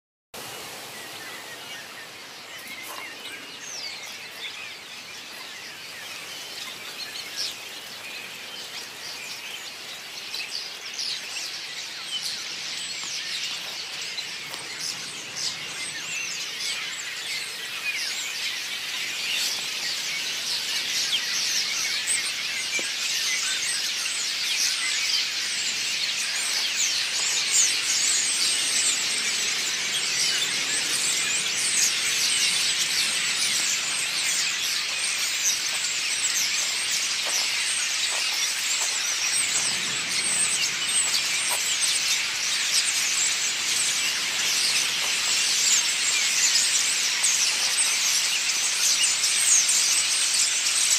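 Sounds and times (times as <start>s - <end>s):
starling flock chattering: 12.2s - 50.9s.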